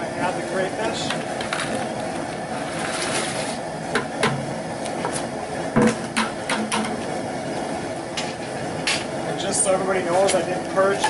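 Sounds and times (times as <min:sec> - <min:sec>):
propane burner rushing: 0:00.0 - 0:11.0.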